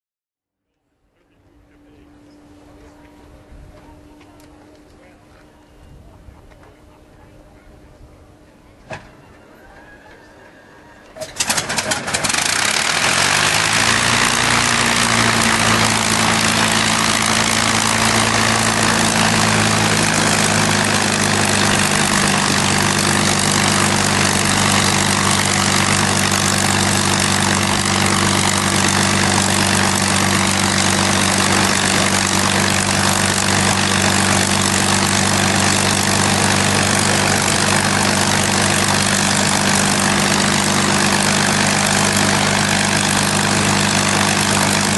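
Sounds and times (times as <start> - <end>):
aircraft engine starting and idling: 1.0 - 5.4, 6.0 - 44.9.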